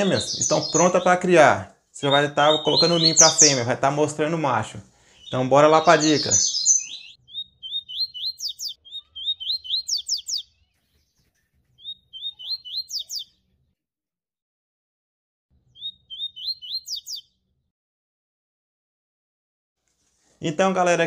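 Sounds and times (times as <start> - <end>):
songbird chirping: 0.0 - 13.8, 15.6 - 17.5.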